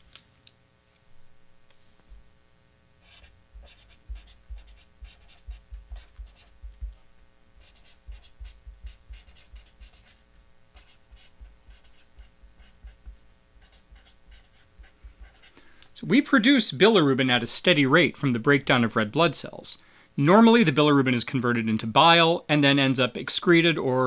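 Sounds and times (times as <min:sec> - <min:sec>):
marker scratching on paper: 0:03.0 - 0:07.0, 0:07.6 - 0:15.5.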